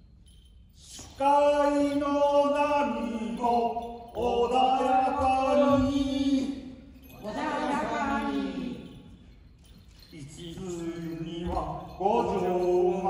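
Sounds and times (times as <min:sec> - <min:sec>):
man singing folk song: 0:01.1 - 0:06.5.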